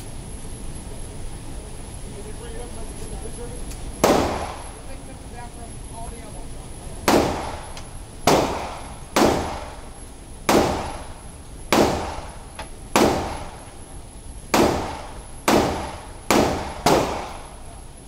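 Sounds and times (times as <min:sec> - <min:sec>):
pistol shots echoing indoors: 0:04.0 - 0:04.8, 0:07.1 - 0:09.9, 0:10.5 - 0:11.1, 0:11.7 - 0:13.6, 0:14.5 - 0:17.7.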